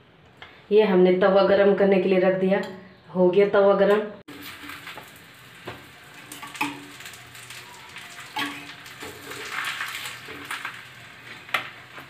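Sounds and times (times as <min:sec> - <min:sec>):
crackling hiss of bread heating: 0:04.3 - 0:12.0.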